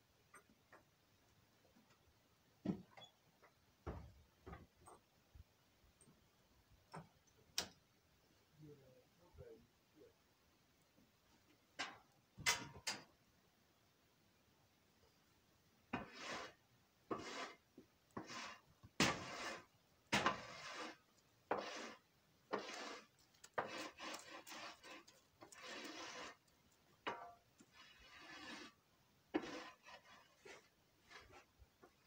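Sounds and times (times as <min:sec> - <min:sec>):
tool scraping across floor: 0:16.0 - 0:17.6, 0:18.2 - 0:26.4, 0:27.1 - 0:32.0.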